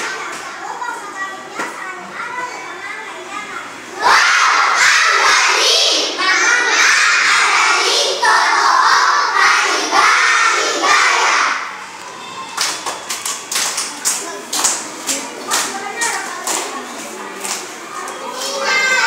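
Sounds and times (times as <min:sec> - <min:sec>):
children shouting in unison: 0:04.0 - 0:11.8
sharp claps: 0:12.5 - 0:18.2.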